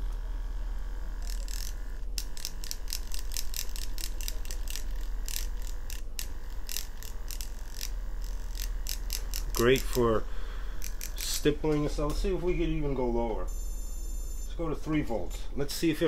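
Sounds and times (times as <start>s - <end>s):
tattoo machine motor hum: 0.0s - 16.0s
needle ticking: 1.0s - 12.2s.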